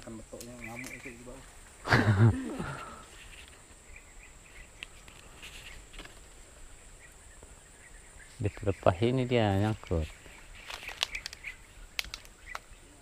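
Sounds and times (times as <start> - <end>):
small animals chirping: 0.3 - 1.9, 6.8 - 13.0
light clicks: 10.7 - 12.7.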